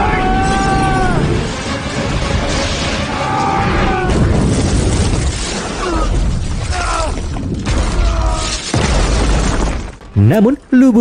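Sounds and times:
shouted cries: 0.0 - 1.3
crashing rumbling blasts: 0.0 - 10.2.

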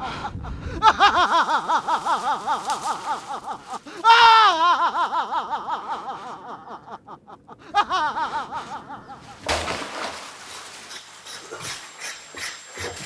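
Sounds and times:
man laughing maniacally: 0.0 - 9.4.

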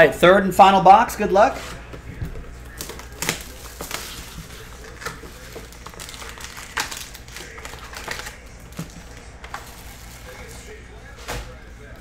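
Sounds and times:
wrapper crinkling: 2.6 - 10.8.

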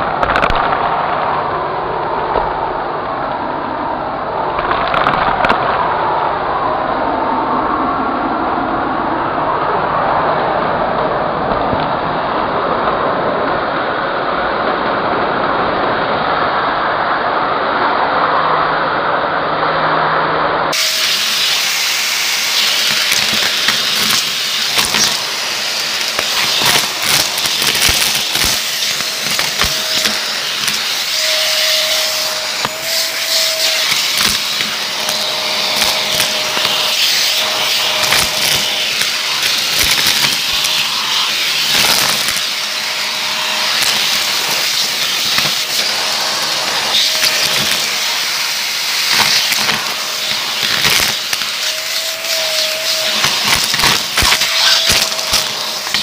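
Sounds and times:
vacuum cleaner running: 11.4 - 56.0
debris crackling up vacuum tool: 20.7 - 56.0.

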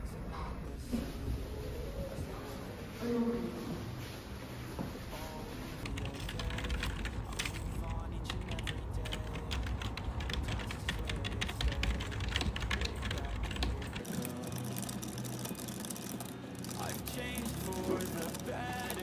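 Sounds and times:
keyboard typing clicks: 5.8 - 19.0.

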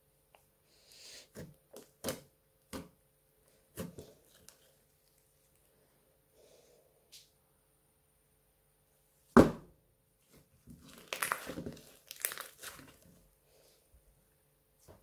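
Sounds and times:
slime squelching and crackling: 3.7 - 5.7, 10.7 - 13.2
slime popping loudly: 10.9 - 12.8.

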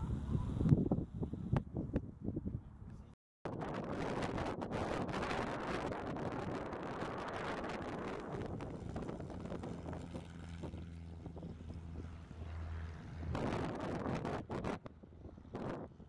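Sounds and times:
propeller aircraft engine humming: 0.0 - 16.0
wind buffeting microphone: 0.0 - 16.0.

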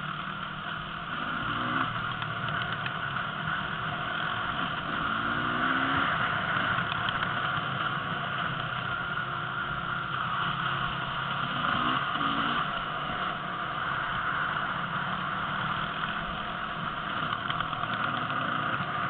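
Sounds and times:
dirt bike engines: 0.0 - 19.0.

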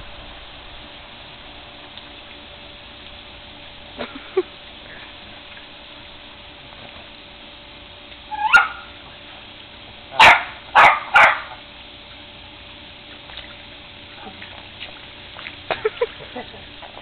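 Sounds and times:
small dog yip: 8.3 - 8.9
small dog barking: 8.4 - 8.9, 10.2 - 11.6.

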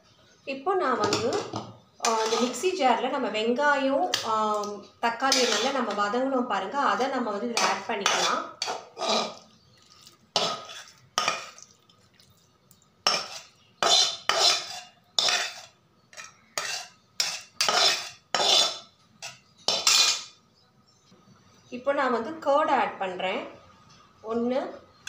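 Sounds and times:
metal spoon scraping metal: 1.1 - 2.8, 5.2 - 6.1, 7.6 - 9.4, 10.0 - 11.6, 13.0 - 20.4.

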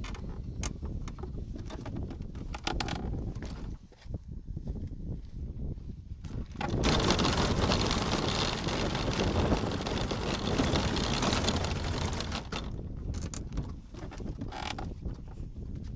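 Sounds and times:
go-kart engine running: 6.7 - 12.6.

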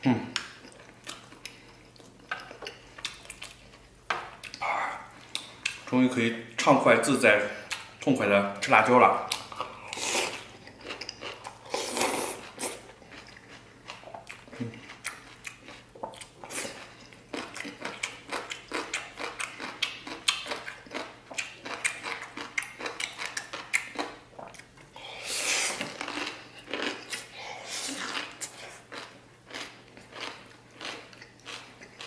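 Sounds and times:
chewing with crisp clicks: 0.4 - 5.9, 9.2 - 11.8, 12.4 - 25.0, 25.8 - 32.0
person slurping noodles: 9.8 - 10.5, 11.6 - 12.8, 25.0 - 26.3.

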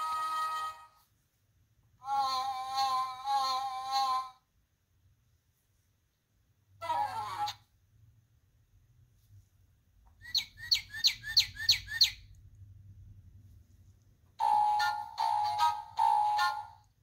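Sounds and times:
electronic bird chirping: 10.2 - 12.2.

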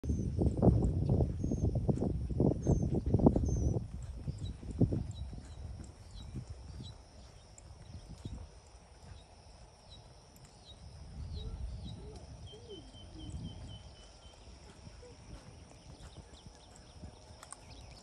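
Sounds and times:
horse hoofbeats on dirt: 0.0 - 18.0
faint bird chirps: 9.0 - 18.0.

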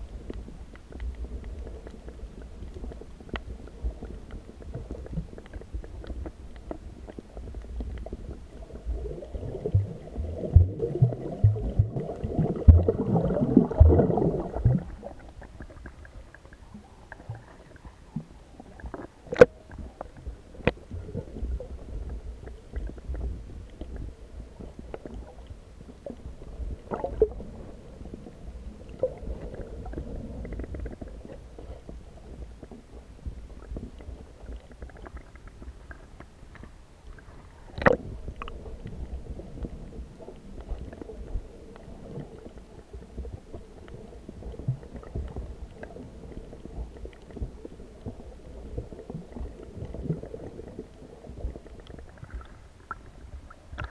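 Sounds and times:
underwater rumbling and gurgling: 0.0 - 53.9.

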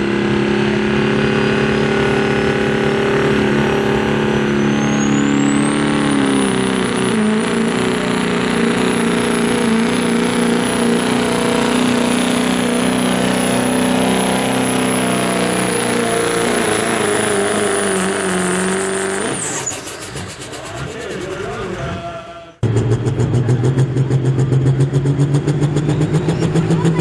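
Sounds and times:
diesel engine running hard: 0.0 - 27.0
turbo whistle: 4.2 - 7.7, 8.6 - 22.1.

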